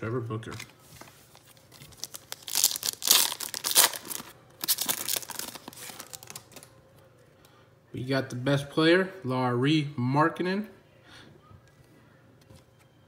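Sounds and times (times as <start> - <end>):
wrapper crinkling: 1.3 - 6.7
foil pack ripping: 1.8 - 6.6.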